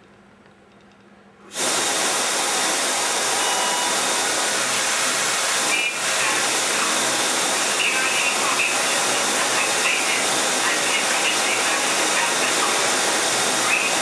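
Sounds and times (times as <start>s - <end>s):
loud hiss of fog jetting: 1.5s - 14.0s.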